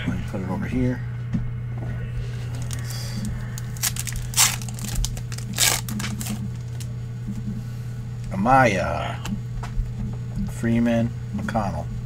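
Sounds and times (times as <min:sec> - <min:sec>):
steady low hum: 0:00.0 - 0:12.0
wrapper tearing and crinkling: 0:02.5 - 0:06.9.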